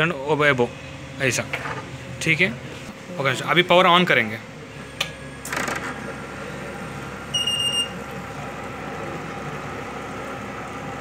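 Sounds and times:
short electronic beep: 0:07.3 - 0:08.0.

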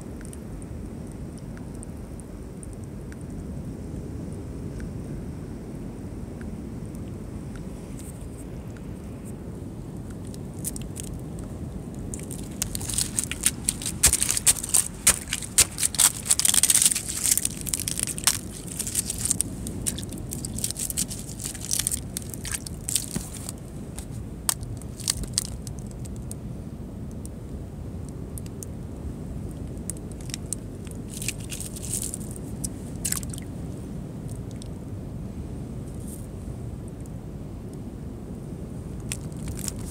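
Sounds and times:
steady low rumble: 0:00.0 - 0:39.9
sharp crackling clicks: 0:12.1 - 0:23.2.

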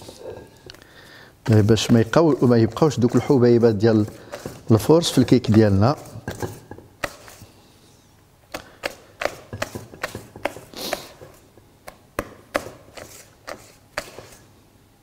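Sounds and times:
whisk beating batter in metal bowl: 0:01.4 - 0:07.4, 0:08.8 - 0:10.7.

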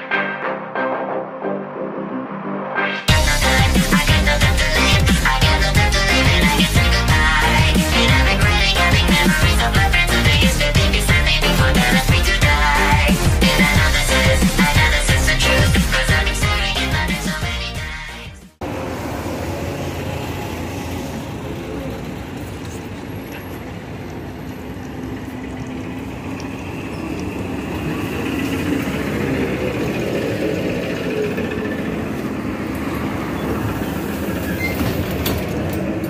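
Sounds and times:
trolleybus drive hum: 0:03.1 - 0:17.7, 0:18.6 - 0:36.0
road and traffic noise: 0:18.6 - 0:36.0.

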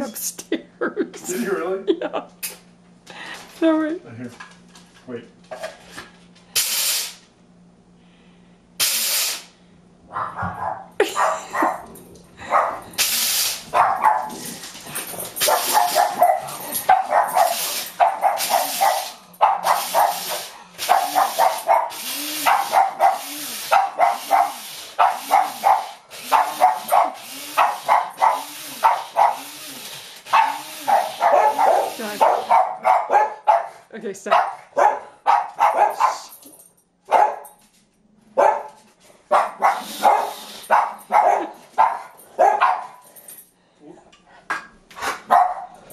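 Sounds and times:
dog barking: 0:10.1 - 0:12.9, 0:13.7 - 0:14.4, 0:15.4 - 0:29.4, 0:30.3 - 0:36.3, 0:37.1 - 0:37.6, 0:38.4 - 0:43.0, 0:45.2 - 0:45.8
coffee grinder whirring: 0:15.4 - 0:32.5, 0:39.7 - 0:40.7.

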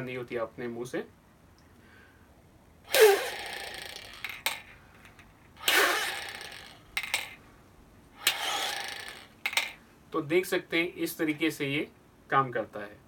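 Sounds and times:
plastic balls clicking: 0:02.9 - 0:07.4, 0:08.2 - 0:09.8.

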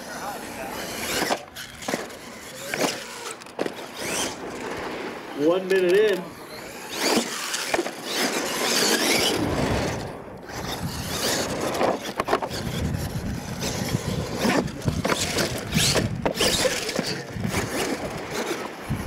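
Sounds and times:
toy truck tyres scrabbling on dirt: 0:00.0 - 0:19.0
toy truck knocking and clattering: 0:11.2 - 0:18.6.

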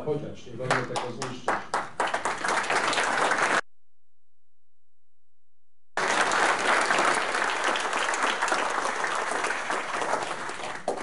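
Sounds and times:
audience applauding: 0:00.6 - 0:03.6, 0:06.0 - 0:11.0.

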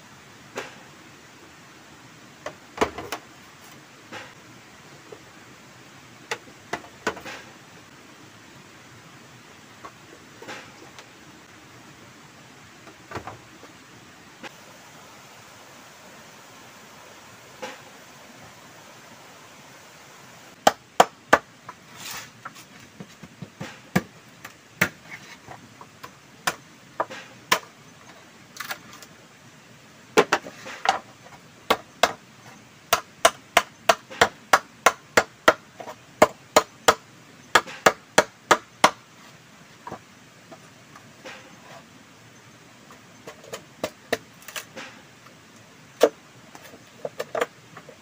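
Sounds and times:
machete chopping bamboo: 0:20.6 - 0:21.5, 0:31.7 - 0:32.2, 0:32.9 - 0:39.0.

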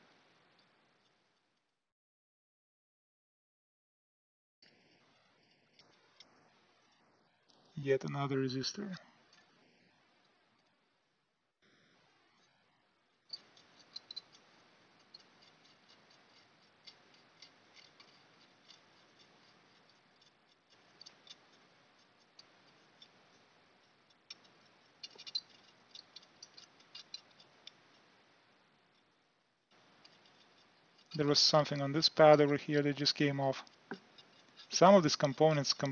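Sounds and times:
metal pick scraping circuit board: 0:13.3 - 0:35.9.

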